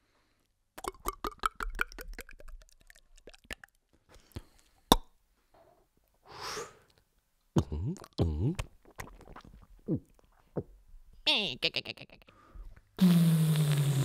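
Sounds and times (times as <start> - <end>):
beatboxed wet pops: 0.8 - 3.8, 4.9 - 5.1, 7.6 - 10.7.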